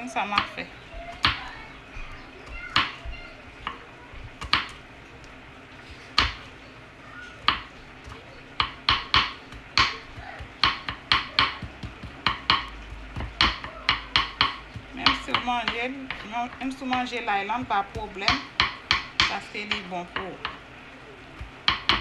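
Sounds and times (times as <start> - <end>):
knife chopping on wooden board: 4.4 - 4.8, 6.1 - 6.4, 7.4 - 19.8, 21.4 - 22.0.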